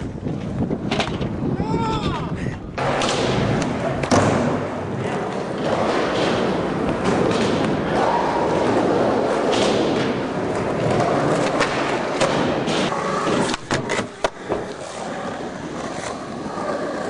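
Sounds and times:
skateboard clacks: 0:00.0 - 0:17.0
skateboard wheels rolling on concrete: 0:00.0 - 0:17.0.

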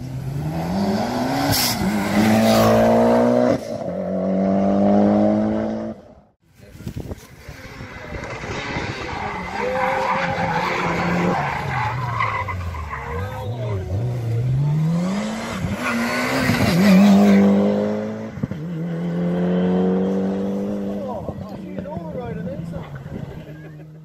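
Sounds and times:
rally car engine accelerating: 0:07.8 - 0:21.1.

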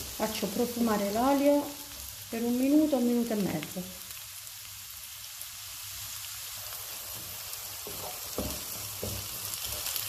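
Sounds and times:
onion sizzling in hot oil: 0:00.0 - 0:10.0
wooden spatula scraping pan: 0:07.0 - 0:10.0.

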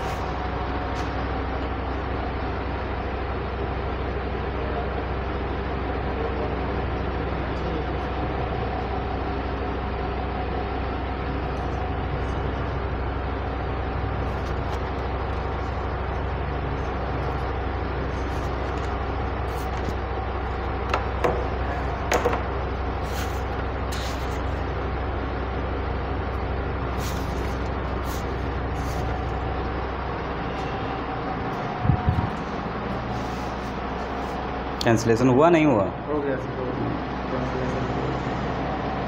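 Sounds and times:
room noise hum and hiss: 0:00.0 - 0:39.0
sharp knocks: 0:20.9 - 0:21.5, 0:22.1 - 0:22.5.

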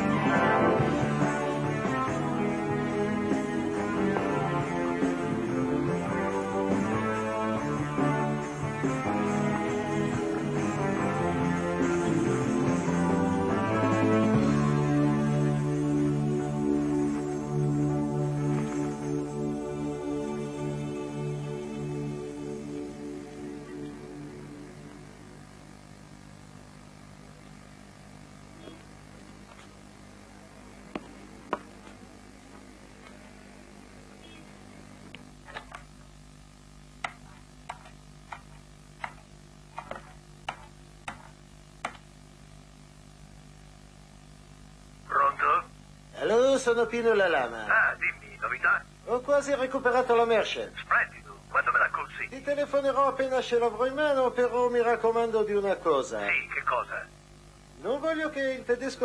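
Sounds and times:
soft ambient chords music: 0:00.0 - 0:28.3
steady low hum: 0:00.0 - 0:59.0.

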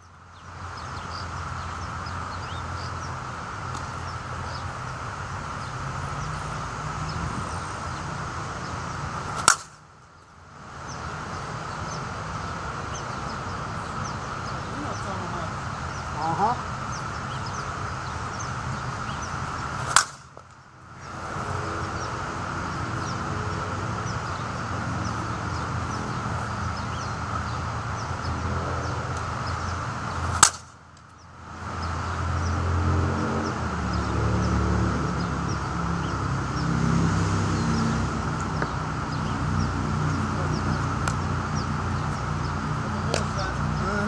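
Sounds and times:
bat hitting a softball: 0:09.3 - 0:09.8, 0:19.8 - 0:20.5, 0:30.3 - 0:30.7.

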